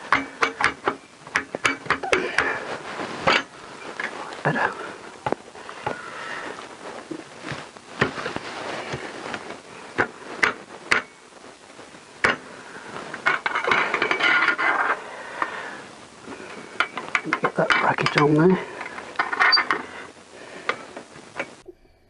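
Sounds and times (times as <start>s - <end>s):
metal pipes clinking: 0.0s - 2.5s, 13.2s - 15.0s
metal scraping on metal: 13.3s - 15.0s.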